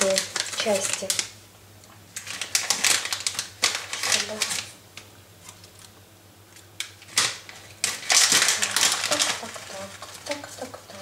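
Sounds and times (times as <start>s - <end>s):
dry leaves crackling: 0.0s - 1.3s, 2.2s - 4.8s, 7.0s - 11.0s.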